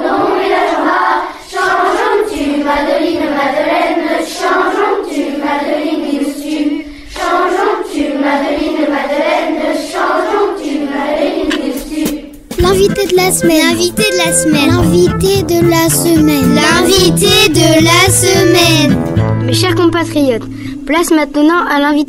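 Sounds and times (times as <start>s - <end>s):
children singing in unison: 0.0s - 12.3s.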